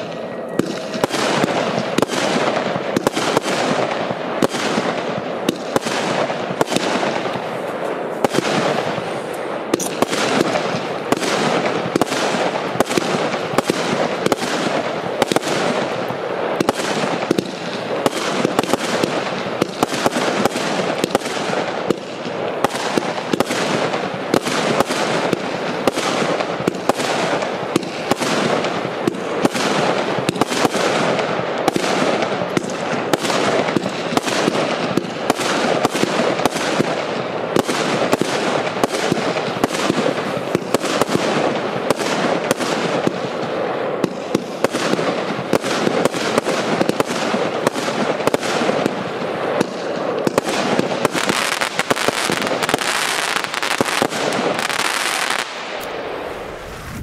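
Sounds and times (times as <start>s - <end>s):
firework crackle and hiss: 0.0s - 57.0s
firework shots: 0.0s - 57.0s.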